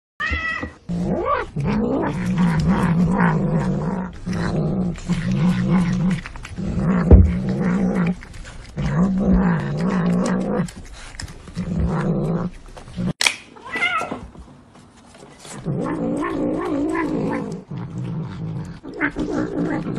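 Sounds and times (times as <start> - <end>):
cat meowing: 0.2 - 0.8, 13.6 - 14.2
cat growling while eating: 0.6 - 14.2, 15.5 - 19.9
cat crying: 13.6 - 14.2.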